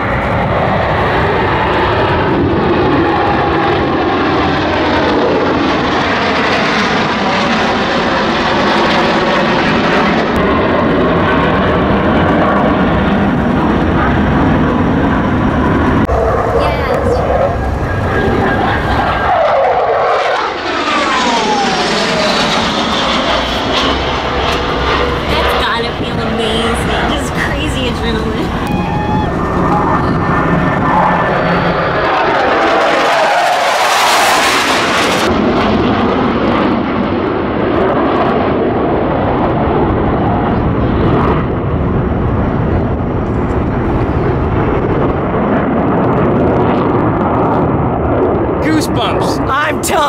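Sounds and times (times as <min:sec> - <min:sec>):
jet roar flying overhead: 0:00.0 - 0:50.0.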